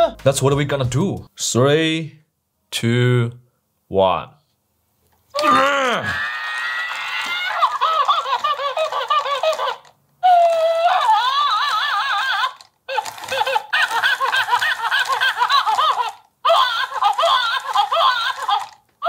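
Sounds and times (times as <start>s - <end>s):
toy monkey cries from speaker: 5.4s - 18.8s.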